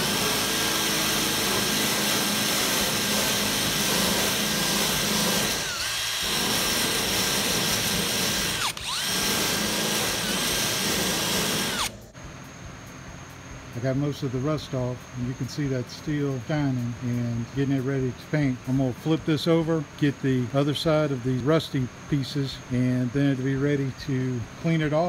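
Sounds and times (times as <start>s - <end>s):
cordless drill motor whine: 0.0s - 12.0s.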